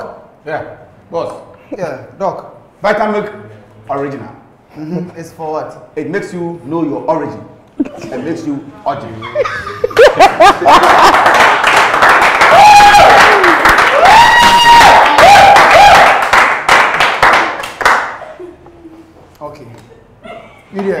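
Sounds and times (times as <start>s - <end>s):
audience laughing: 9.2s - 11.4s
audience clapping: 10.0s - 18.3s
long held shouts: 12.4s - 16.2s.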